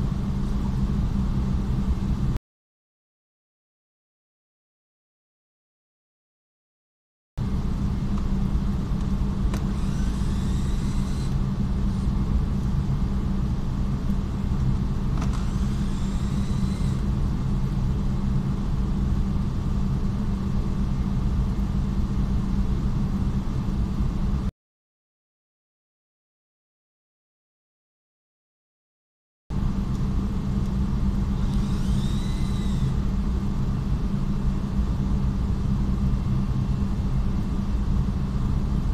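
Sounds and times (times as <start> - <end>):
low workshop rumble: 7.4 - 24.5, 29.5 - 38.9
power screwdriver whine: 9.5 - 12.2, 15.2 - 17.1, 31.3 - 33.0.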